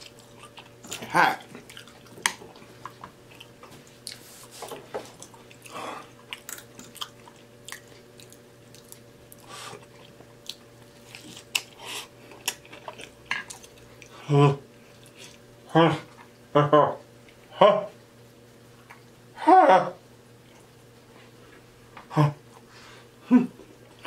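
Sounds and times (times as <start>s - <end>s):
man chewing food: 0.0s - 17.5s, 18.3s - 19.3s, 20.4s - 24.0s.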